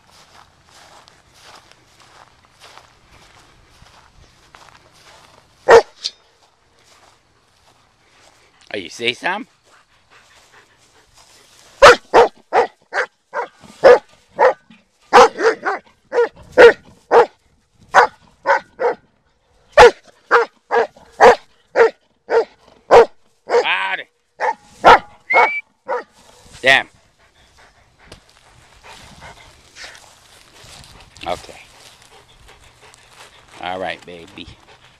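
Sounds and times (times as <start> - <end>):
dog barking: 5.7 - 6.1, 11.8 - 19.0, 19.8 - 23.8, 24.4 - 26.1.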